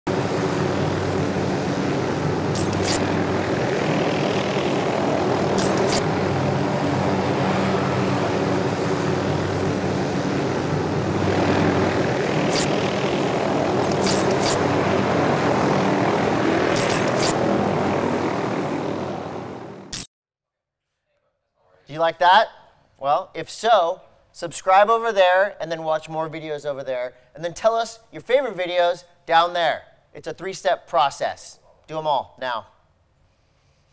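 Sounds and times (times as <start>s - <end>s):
rushing wind: 0.1s - 19.8s
aircraft engine drone: 0.1s - 20.0s
short high clicks: 2.6s - 3.0s, 5.6s - 6.0s, 13.8s - 14.6s.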